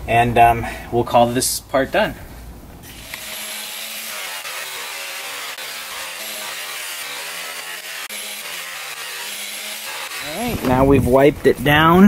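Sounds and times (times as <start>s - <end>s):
motor hum: 2.8s - 10.9s
buffing wheel hissing on metal: 2.9s - 10.6s.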